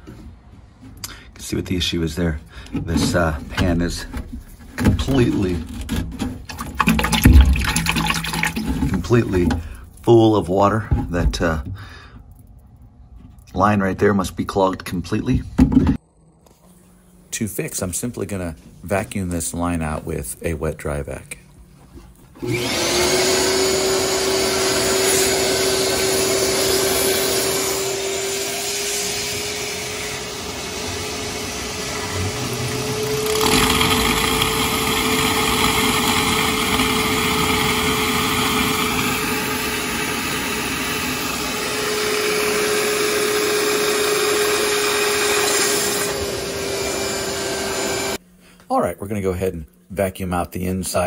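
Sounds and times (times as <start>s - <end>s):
shop vacuum running: 21.9s - 48.2s.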